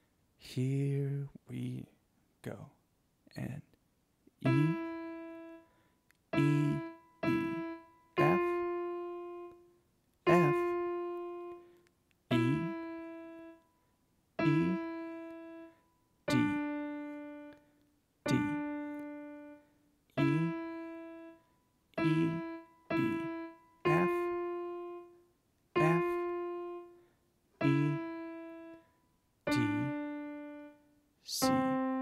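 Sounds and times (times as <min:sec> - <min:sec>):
piano slow melody: 0:04.4 - 0:05.7, 0:06.3 - 0:09.7, 0:10.3 - 0:11.7, 0:12.3 - 0:13.7, 0:14.4 - 0:17.6, 0:18.3 - 0:25.2, 0:25.8 - 0:27.0, 0:27.6 - 0:28.9, 0:29.5 - 0:32.0.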